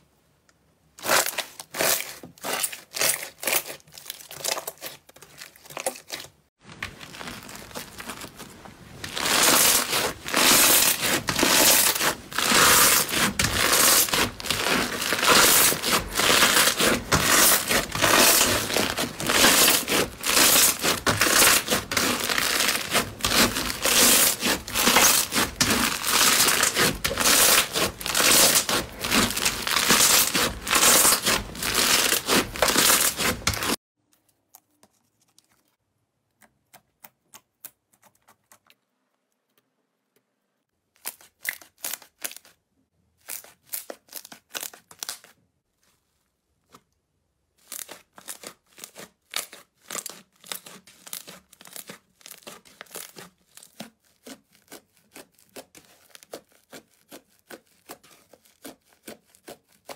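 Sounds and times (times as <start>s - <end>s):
foam slime crunching crackle: 6.9s - 33.8s.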